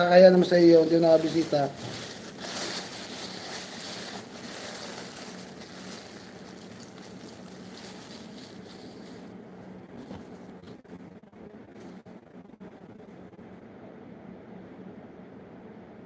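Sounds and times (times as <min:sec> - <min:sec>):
faint low hum: 0:00.0 - 0:16.0
handling rustles: 0:00.2 - 0:10.8.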